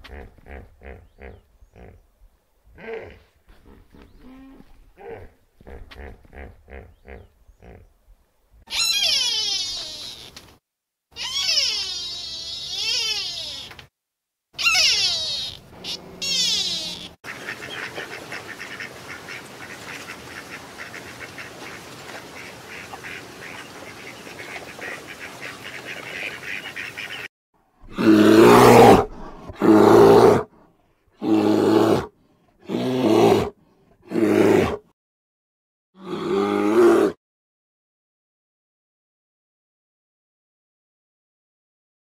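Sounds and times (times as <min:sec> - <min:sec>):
large animal deep calls: 0:08.7 - 0:10.3, 0:11.2 - 0:13.7, 0:14.6 - 0:17.2, 0:27.8 - 0:30.5.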